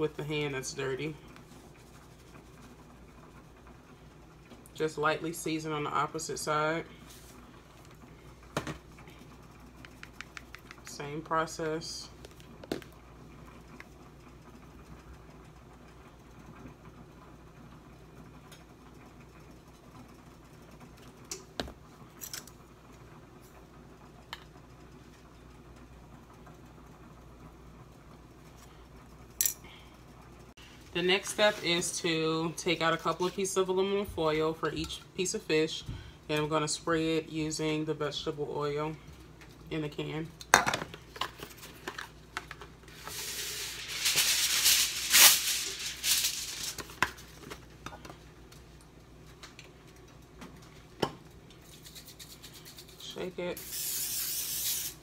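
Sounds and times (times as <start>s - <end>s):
foil crinkling: 42.9s - 47.4s
aluminium foil tearing: 43.1s - 47.0s, 53.6s - 55.0s.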